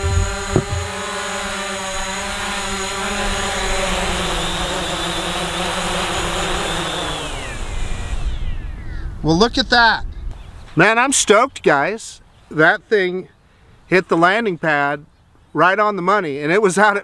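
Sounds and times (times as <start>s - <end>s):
drone propellers whining: 0.0s - 9.2s.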